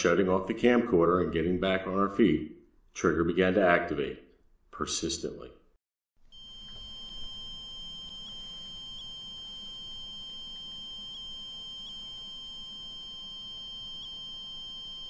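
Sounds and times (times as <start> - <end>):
high-pitched electronic alarm tone: 6.3 - 15.0.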